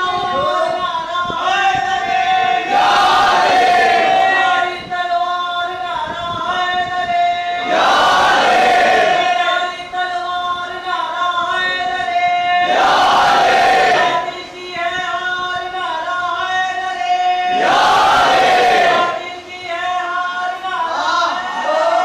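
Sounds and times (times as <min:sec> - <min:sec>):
crowd shouting: 0:02.4 - 0:04.6, 0:07.6 - 0:09.5, 0:12.6 - 0:14.3, 0:17.5 - 0:19.2
crowd of men chanting: 0:02.4 - 0:04.8, 0:07.6 - 0:09.6, 0:12.6 - 0:14.4, 0:17.4 - 0:19.3.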